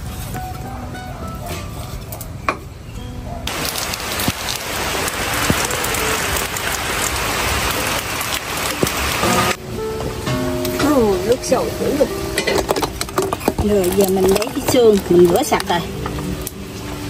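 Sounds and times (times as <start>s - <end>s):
faint background music: 0.0s - 3.5s, 9.2s - 17.0s
falling water rushing: 3.5s - 17.0s.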